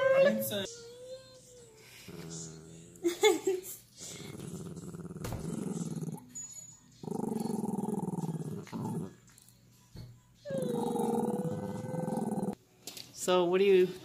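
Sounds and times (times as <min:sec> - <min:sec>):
dog growling: 0:02.1 - 0:03.2, 0:04.0 - 0:06.3, 0:07.0 - 0:09.4, 0:10.5 - 0:12.6.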